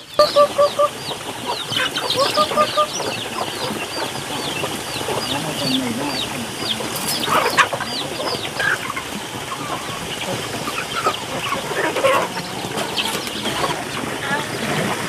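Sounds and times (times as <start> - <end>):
chicks peeping: 0.0 - 15.0
hens clucking: 0.0 - 15.0.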